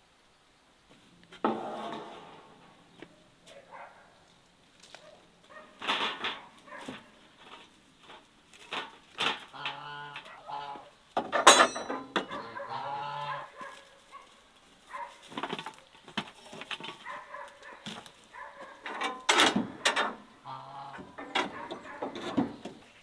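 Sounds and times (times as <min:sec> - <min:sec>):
knocks and clatter on metal rack: 0:05.8 - 0:07.1, 0:08.1 - 0:09.8, 0:11.2 - 0:12.4, 0:18.8 - 0:20.2, 0:21.0 - 0:22.8.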